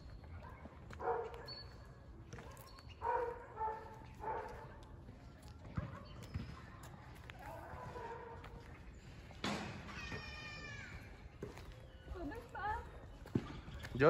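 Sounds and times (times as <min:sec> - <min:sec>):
dog barking: 0:00.4 - 0:01.7, 0:02.4 - 0:04.8, 0:07.4 - 0:08.6.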